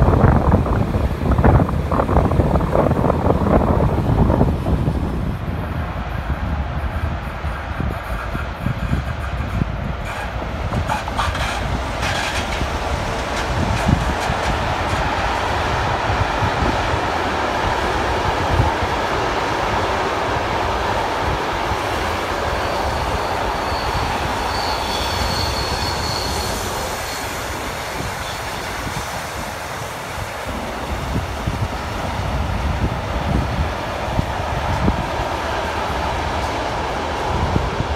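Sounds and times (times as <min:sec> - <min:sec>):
freight train rumbling and rattling: 0:00.0 - 0:37.9
wind buffeting microphone: 0:00.0 - 0:37.9
high wheel squeal: 0:08.8 - 0:12.7, 0:22.3 - 0:29.1.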